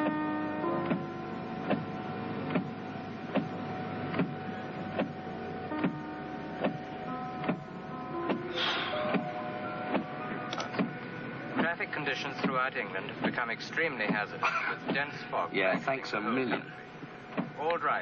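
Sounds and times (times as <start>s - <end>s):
windscreen wipers sweeping: 0.0s - 17.8s
steady hum: 0.0s - 18.0s.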